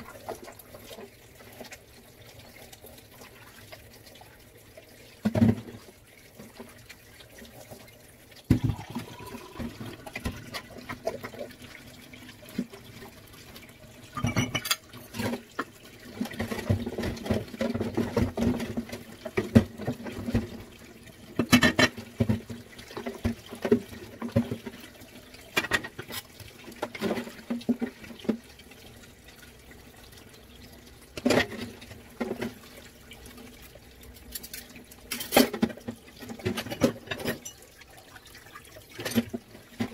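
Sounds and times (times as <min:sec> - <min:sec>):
water splashing and running: 0:00.0 - 0:39.9
dishes clinking and knocking: 0:08.5 - 0:11.4, 0:14.1 - 0:15.4, 0:21.4 - 0:22.5, 0:34.4 - 0:37.7.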